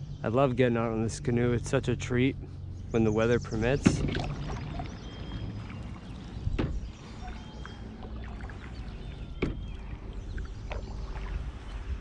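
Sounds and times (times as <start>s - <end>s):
sharp knocks on canoe: 3.8s - 4.8s, 6.5s - 6.9s, 9.4s - 9.8s
paddle strokes in water: 3.8s - 12.0s.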